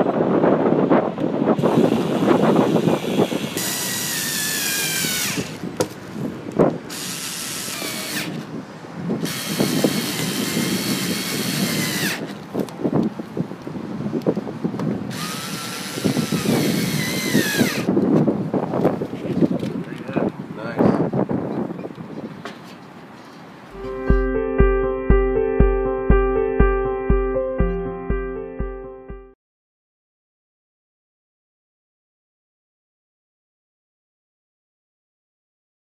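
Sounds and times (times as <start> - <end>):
cordless screwdriver motor whine: 1.6 - 5.6, 6.9 - 8.4, 9.2 - 12.3, 15.1 - 17.9.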